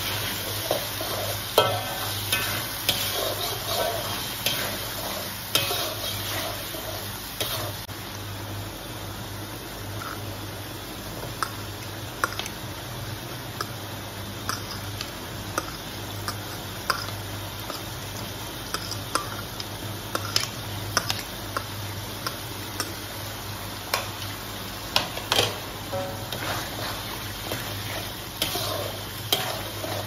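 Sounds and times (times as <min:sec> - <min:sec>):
metal spatula scraping a wok: 0:00.0 - 0:07.8, 0:25.3 - 0:30.0.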